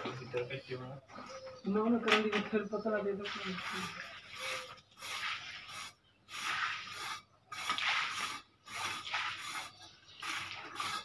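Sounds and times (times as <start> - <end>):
tool scraping cement on concrete: 3.6 - 11.0.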